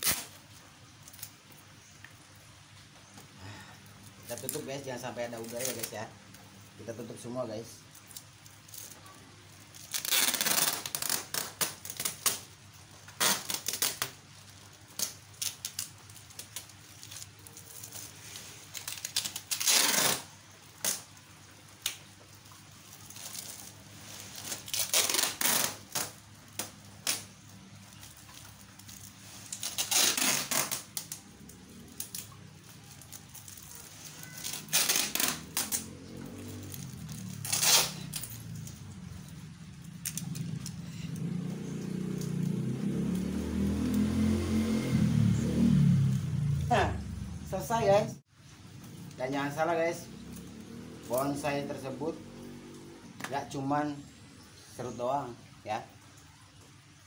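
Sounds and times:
packing tape pulled off roll: 0.0s - 1.6s, 4.2s - 6.1s, 7.9s - 21.2s, 21.8s - 42.5s
plastic sheeting crinkling: 0.0s - 2.5s, 3.5s - 44.7s.

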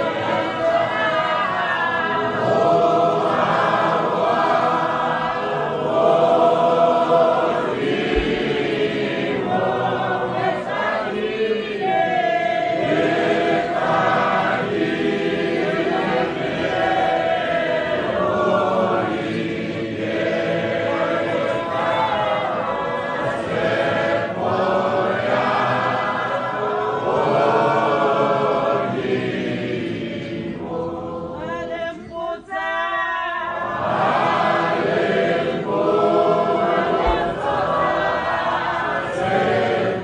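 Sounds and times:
choir singing: 0.0s - 40.0s.

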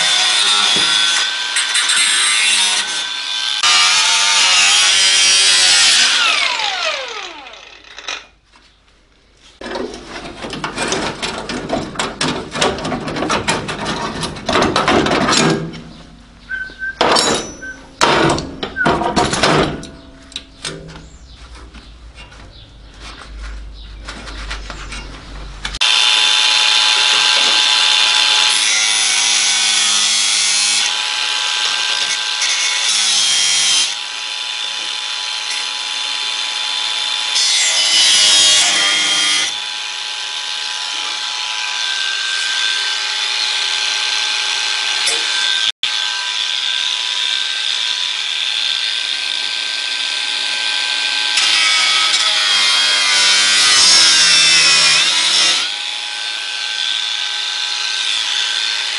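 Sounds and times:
angle grinder cutting sheet metal: 0.0s - 8.4s, 25.8s - 58.9s.

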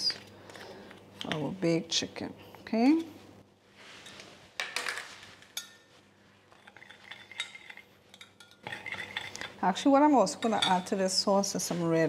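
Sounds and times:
spoon stirring thick sauce: 6.6s - 9.6s.

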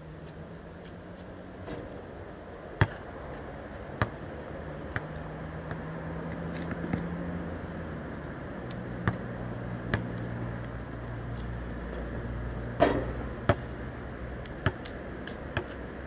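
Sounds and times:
steady low hum: 0.0s - 16.0s
basketball bouncing on asphalt: 2.8s - 3.0s, 4.0s - 4.2s, 4.9s - 7.1s, 9.0s - 9.3s, 9.9s - 10.2s, 12.8s - 13.7s, 14.6s - 15.8s.

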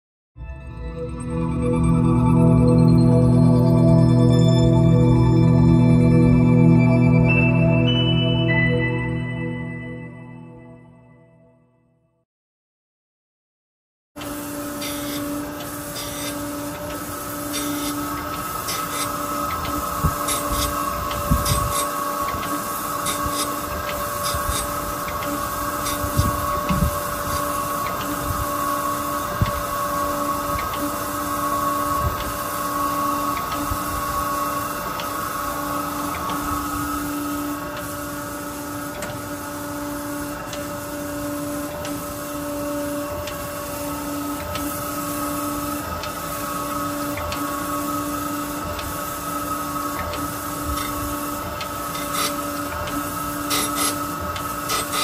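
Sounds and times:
grinder machine whine: 14.2s - 55.0s
pulsing hydraulic hum: 14.2s - 55.0s.

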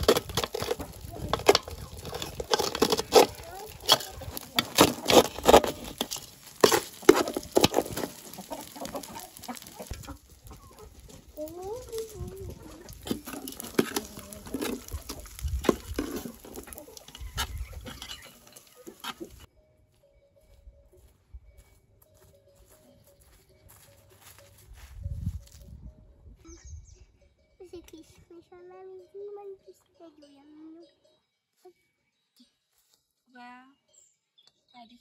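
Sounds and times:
hens clucking: 0.0s - 19.5s
metal spatula scraping pot: 0.0s - 19.5s.

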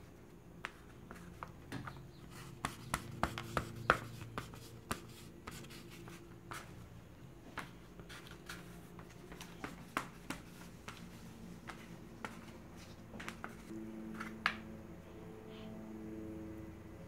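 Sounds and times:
steady low hum: 0.0s - 17.0s
hands handling paper and pastels: 7.5s - 14.6s.

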